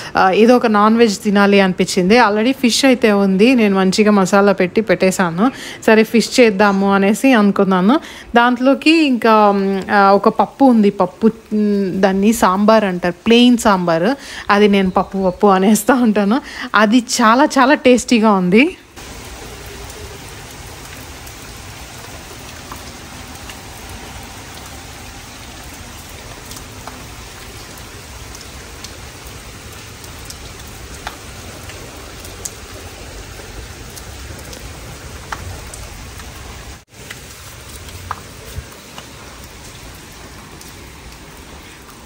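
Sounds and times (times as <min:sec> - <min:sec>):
steady rain falling: 0:00.0 - 0:42.0
raindrops ticking: 0:07.9 - 0:18.2, 0:18.9 - 0:42.0.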